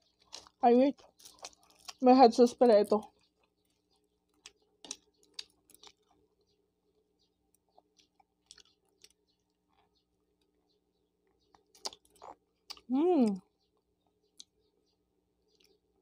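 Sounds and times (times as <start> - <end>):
faint chewing mouth clicks: 0.0 - 2.0, 3.0 - 6.6, 7.6 - 10.6, 11.2 - 14.6, 15.5 - 15.8.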